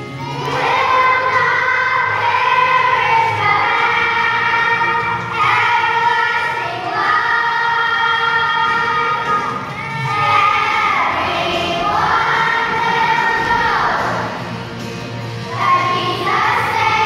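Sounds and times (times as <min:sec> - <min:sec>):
children's choir singing: 0:00.0 - 0:17.0.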